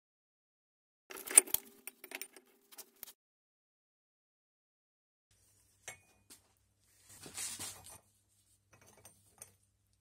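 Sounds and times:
scraping rustle: 7.0s - 8.1s.

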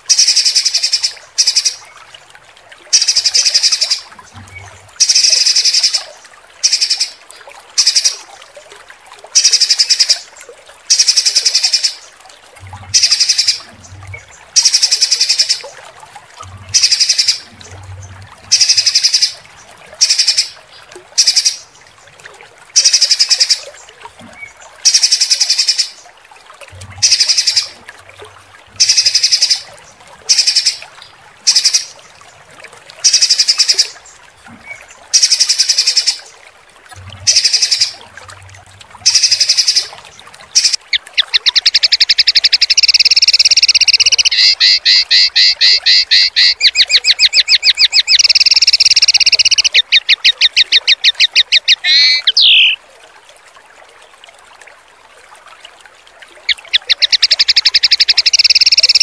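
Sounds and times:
songbird rattling trills: 40.6s - 52.8s, 56.5s - 59.0s.

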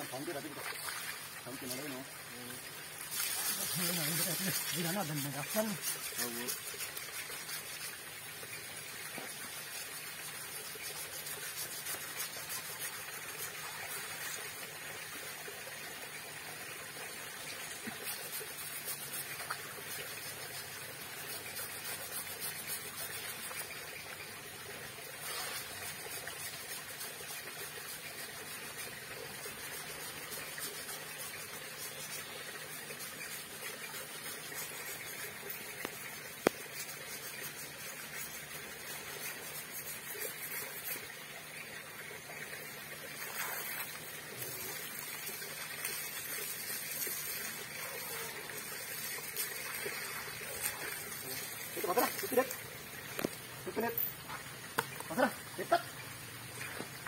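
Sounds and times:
hose water splashing: 0.0s - 57.0s.

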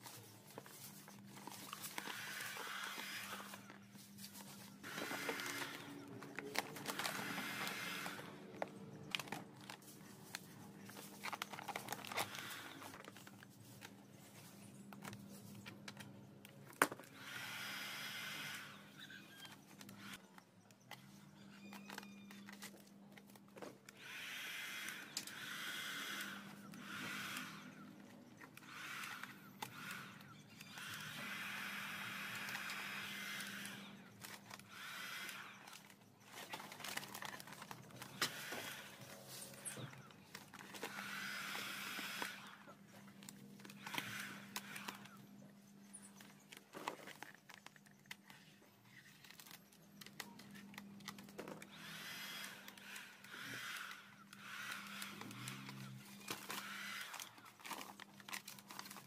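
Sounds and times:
vinyl film crinkling: 3.7s - 14.2s
heat gun humming: 4.8s - 8.6s, 24.0s - 35.9s, 51.4s - 57.8s.

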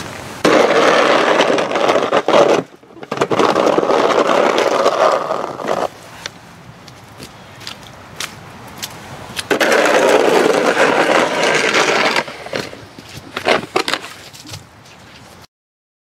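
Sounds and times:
snow shovel scraping slushy asphalt: 0.0s - 6.2s, 9.5s - 14.4s
short knocks and scuffs: 12.5s - 15.4s.

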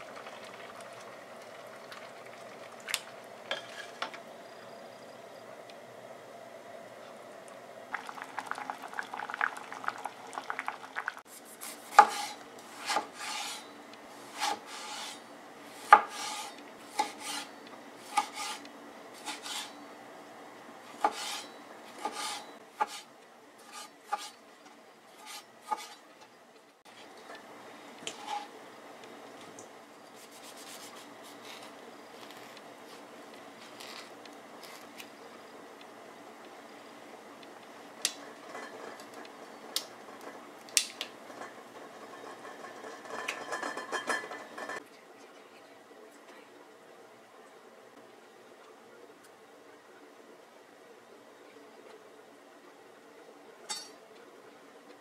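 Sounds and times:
metal turner scraping a steel pot: 11.9s - 15.2s, 15.8s - 17.5s, 18.1s - 19.8s, 21.0s - 24.4s, 28.0s - 28.5s, 38.3s - 40.4s, 41.2s - 44.8s.

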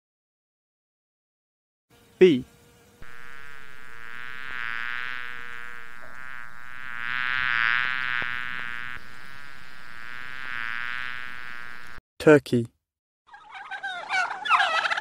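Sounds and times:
bee buzzing in flight: 2.5s - 12.0s.

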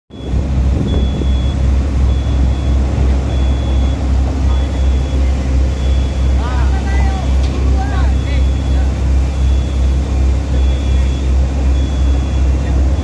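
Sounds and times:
construction machinery engine droning: 0.1s - 13.0s
high-pitched warning beeps: 0.1s - 13.0s.

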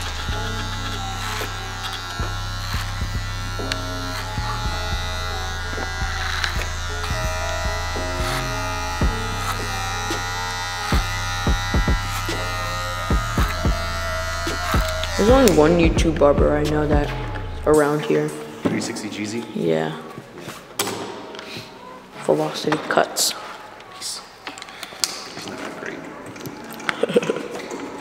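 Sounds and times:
electric hair clippers buzzing: 0.0s - 17.8s
background music: 0.0s - 20.0s.

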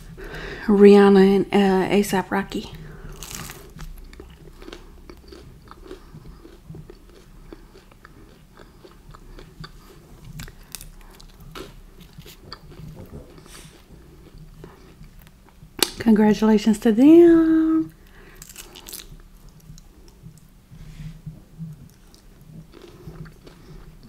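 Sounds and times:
chewing with mouth clicks: 3.1s - 16.0s, 18.4s - 20.5s, 21.3s - 24.0s.

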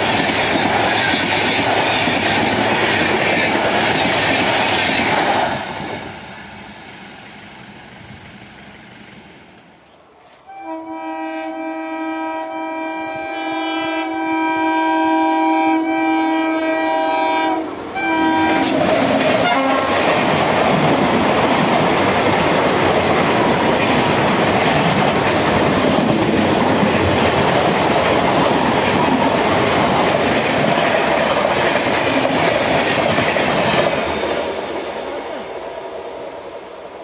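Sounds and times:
train horn: 10.5s - 20.0s.

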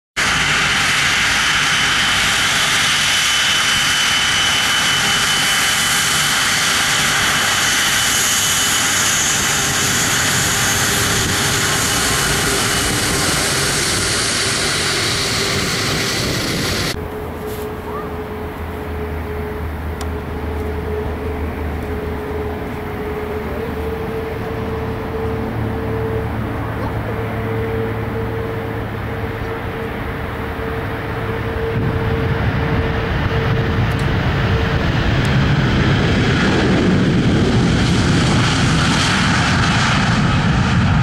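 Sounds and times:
jet engines at takeoff power: 0.2s - 41.0s
steady hum: 16.7s - 34.2s.

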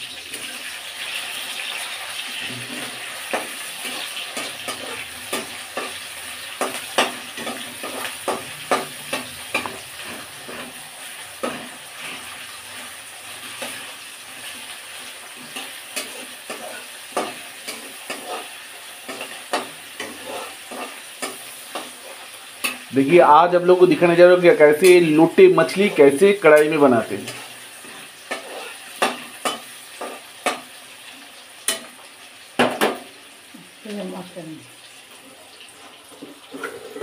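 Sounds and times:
vegetables sizzling in hot oil: 0.0s - 37.0s
utensil scraping pan: 1.7s - 22.9s, 27.2s - 30.7s, 35.8s - 37.0s.

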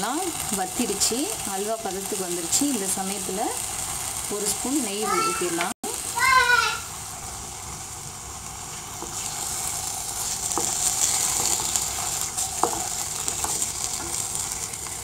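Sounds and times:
food sizzling in ghee: 0.0s - 15.0s
spatula knocking on pan: 12.6s - 14.2s.

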